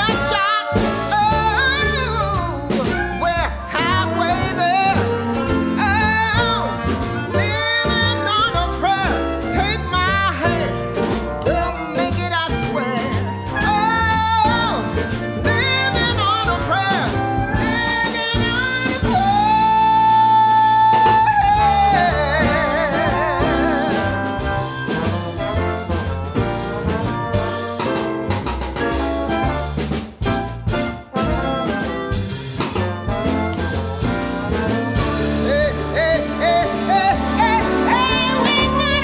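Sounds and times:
song with singing over a band: 15.5 - 25.0, 34.2 - 39.0.

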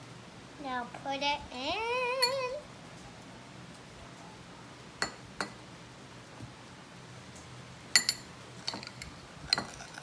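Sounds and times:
spoon clinking metal bowl: 8.0 - 10.0.

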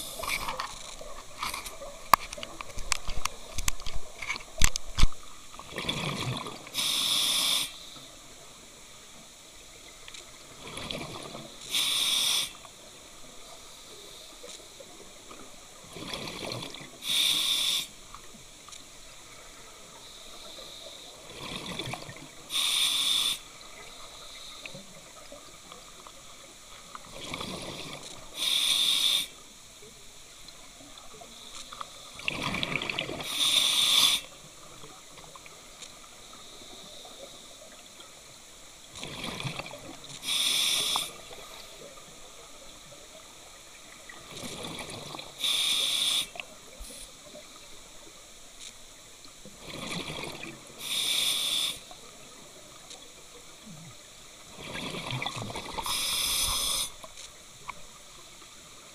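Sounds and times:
exhaled bubbles gurgling: 0.0 - 7.2, 10.5 - 11.6, 15.8 - 17.1, 21.2 - 22.4, 32.2 - 33.4, 39.0 - 41.6, 42.8 - 46.5, 49.5 - 52.5, 53.6 - 57.0
regulator demand valve hiss: 6.7 - 8.1, 11.6 - 12.7, 17.0 - 18.2, 22.5 - 24.9, 28.3 - 29.4, 33.2 - 34.4, 40.2 - 41.9, 45.4 - 47.2, 50.8 - 52.0, 55.8 - 57.1.

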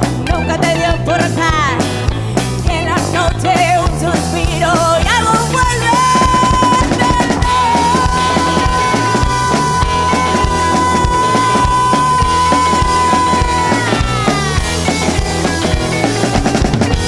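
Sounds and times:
woman singing: 0.0 - 1.9, 2.6 - 15.8
rockabilly band playing live: 0.0 - 17.0.

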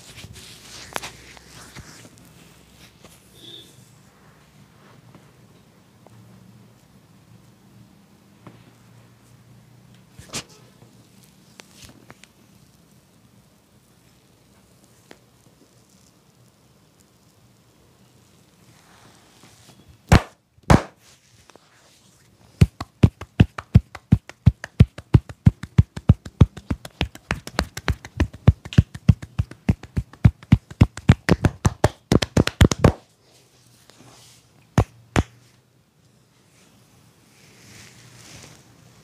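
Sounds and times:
hands patting on head: 20.1 - 21.0, 22.6 - 33.0, 34.8 - 35.4.

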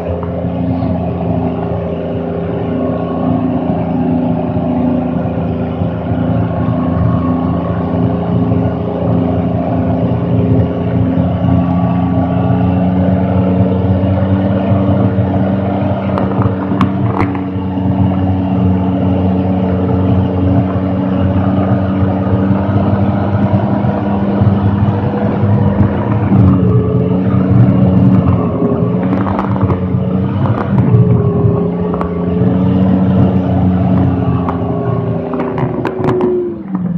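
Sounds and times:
diesel engine rumbling: 0.0 - 36.9.

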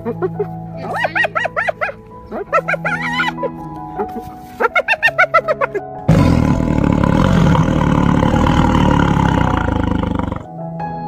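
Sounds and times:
leopard growling: 5.5 - 10.5.

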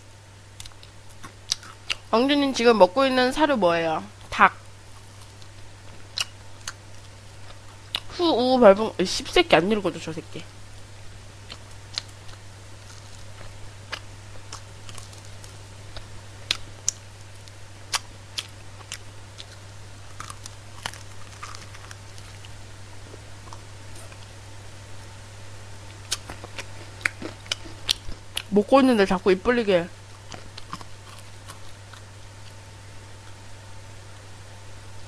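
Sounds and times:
low electrical hum: 0.0 - 35.0
chewing crispy fried chicken: 0.6 - 2.0, 4.9 - 8.1, 11.4 - 24.3, 25.9 - 28.5, 30.0 - 32.6.

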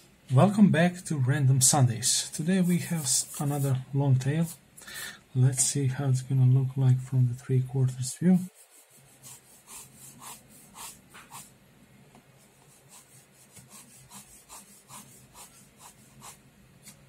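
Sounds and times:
pen scratching on paper: 8.4 - 11.5, 12.5 - 16.4.

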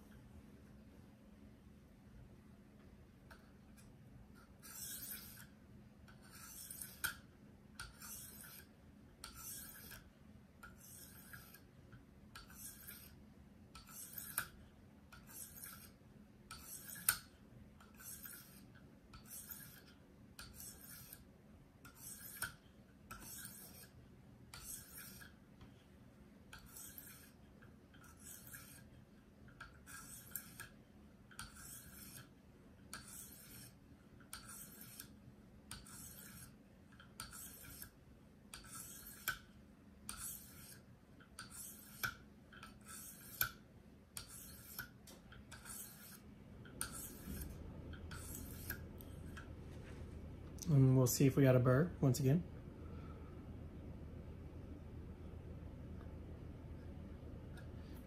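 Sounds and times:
sharpening stone scraping knife edge: 4.6 - 5.5, 6.1 - 11.7, 12.4 - 13.2, 13.8 - 25.4, 26.5 - 29.0, 29.6 - 30.8, 31.4 - 32.3, 32.9 - 39.5, 40.1 - 43.6, 44.2 - 49.4.

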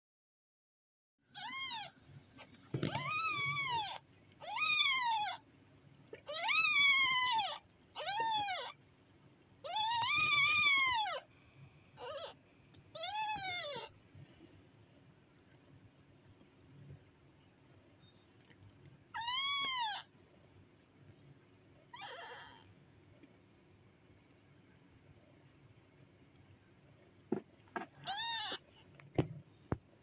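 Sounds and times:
kitten mewing: 2.8 - 5.4, 6.2 - 8.7, 9.7 - 11.2, 12.0 - 12.4, 13.0 - 13.9, 19.2 - 20.0, 27.8 - 28.6.

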